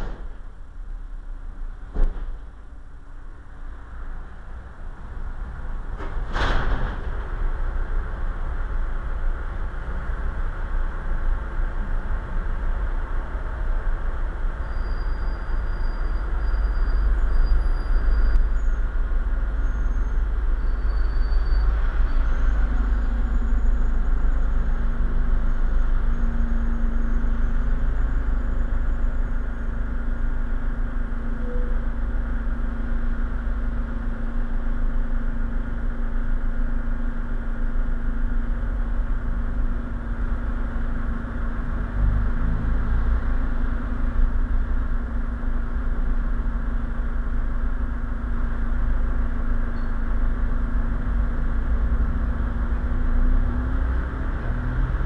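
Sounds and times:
muffled vehicle rumble: 0.0s - 55.0s
steady low hum: 21.6s - 55.0s.

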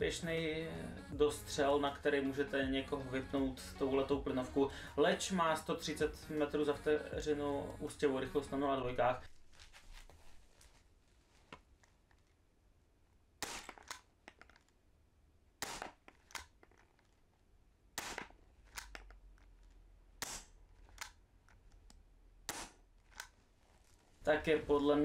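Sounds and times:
airsoft pistol shots: 13.4s - 14.0s, 15.6s - 16.0s, 18.0s - 18.4s, 20.2s - 20.6s, 22.5s - 22.8s.

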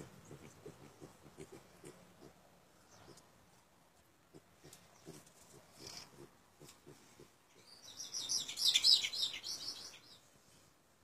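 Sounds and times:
pigs grunting softly: 0.0s - 2.4s, 4.3s - 7.4s.

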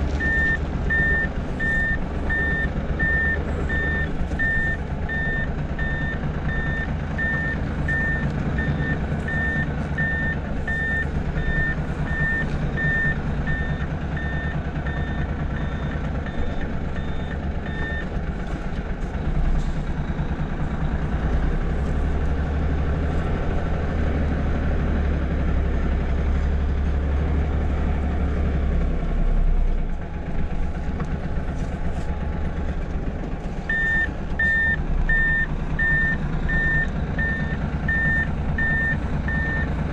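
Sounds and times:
diesel engine running: 0.0s - 39.9s
truck reversing alarm beeps: 0.2s - 18.2s, 19.2s - 25.2s, 33.6s - 39.9s.

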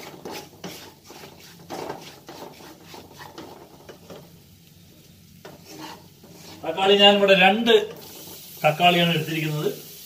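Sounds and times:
wooden spatula scraping a pan: 0.0s - 4.4s, 5.4s - 8.6s.

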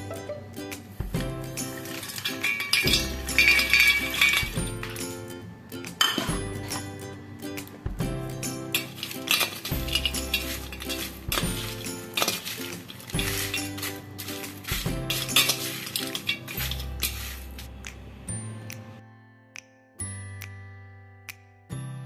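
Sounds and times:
background music with steady beat: 0.0s - 22.0s
spoon stirring nuts in metal bowl: 1.6s - 5.1s, 8.7s - 17.8s
nuts clinking against steel: 1.7s - 5.1s, 8.7s - 17.7s.

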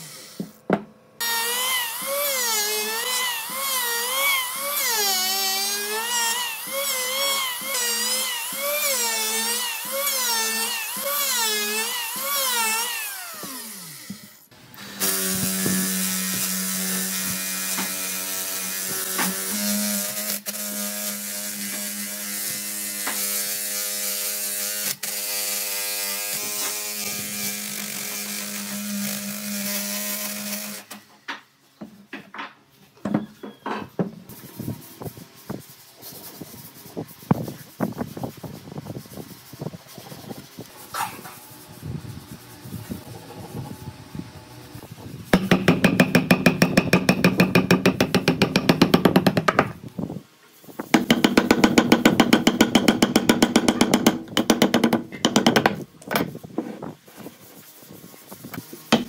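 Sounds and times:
electric hand planer shaving log: 1.2s - 30.9s.

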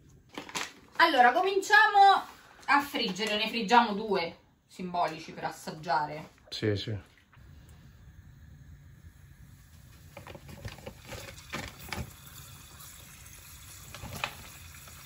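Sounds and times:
oil sizzling with pops: 7.2s - 15.0s.

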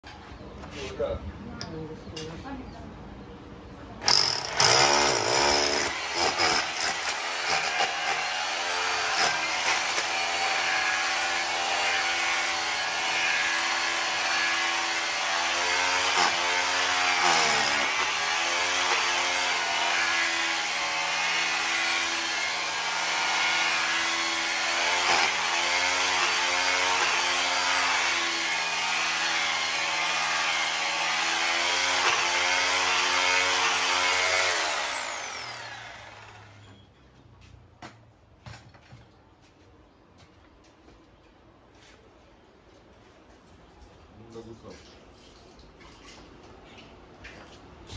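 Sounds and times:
electric drill boring into concrete: 4.0s - 36.6s.

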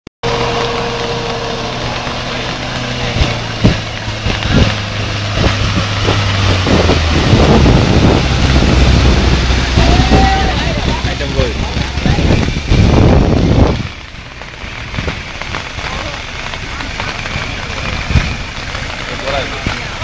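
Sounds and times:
vehicle engine running: 0.2s - 20.0s
water rushing and splashing: 0.2s - 20.0s.

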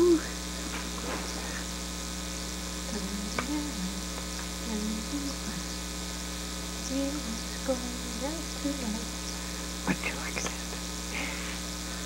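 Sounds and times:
electrical mains hum: 0.0s - 12.0s
soft gliding voice sounds: 2.8s - 5.8s.

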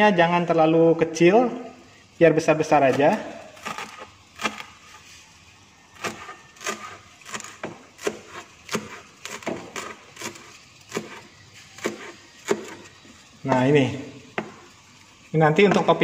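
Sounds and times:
cleaver chopping on cutting board: 11.8s - 12.8s.

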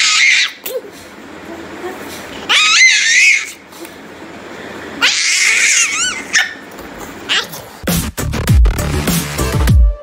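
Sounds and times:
toddler girl shrieking: 0.0s - 0.8s, 2.5s - 3.6s, 5.0s - 6.6s.

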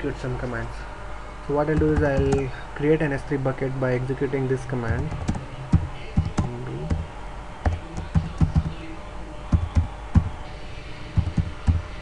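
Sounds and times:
typing on computer keyboard: 4.9s - 7.0s, 7.6s - 8.8s, 9.5s - 10.4s, 11.2s - 11.9s.

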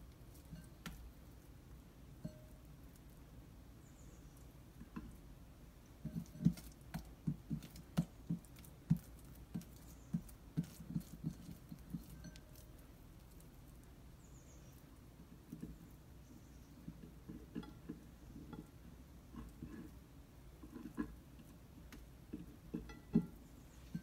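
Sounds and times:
hands patting sticky dough: 0.0s - 3.2s, 4.4s - 16.1s.

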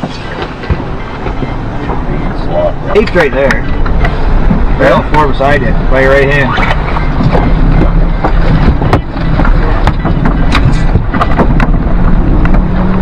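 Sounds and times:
knocks and clicks in boat: 0.0s - 2.1s, 6.5s - 13.0s
wind buffeting microphone: 6.5s - 13.0s.

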